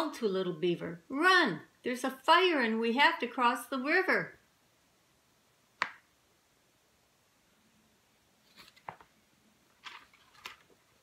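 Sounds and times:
book pages rustling: 0:08.4 - 0:11.0.

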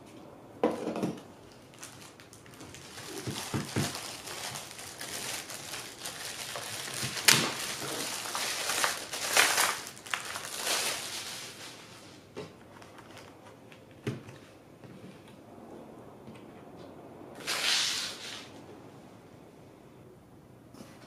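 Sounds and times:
plastic bag crinkling: 0:01.5 - 0:13.8.

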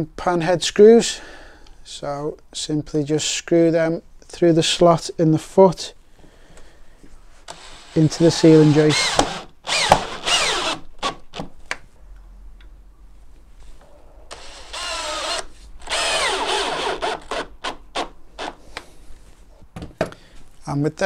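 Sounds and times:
cordless drill driving screws: 0:07.5 - 0:11.5, 0:14.3 - 0:18.6.

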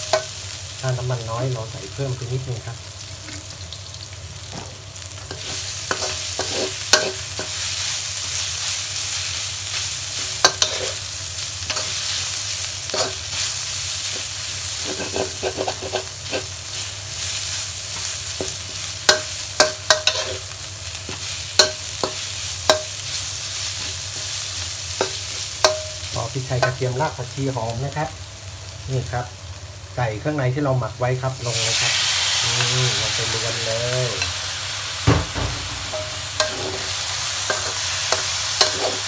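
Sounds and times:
food sizzling in oil: 0:00.0 - 0:39.0
spatula scraping pan: 0:14.8 - 0:16.6, 0:19.9 - 0:20.5, 0:35.9 - 0:39.0.

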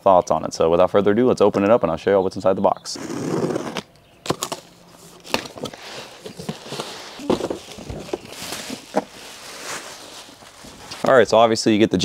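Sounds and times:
plastic bag crinkling: 0:04.3 - 0:11.0.

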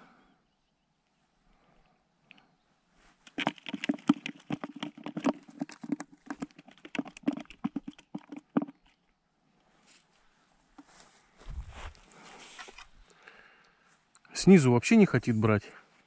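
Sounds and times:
fish flapping and slapping: 0:03.2 - 0:09.0.

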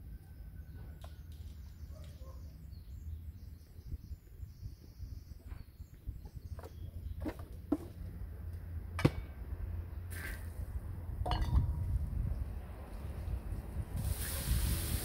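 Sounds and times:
dishes and utensils clinking: 0:11.3 - 0:11.8.

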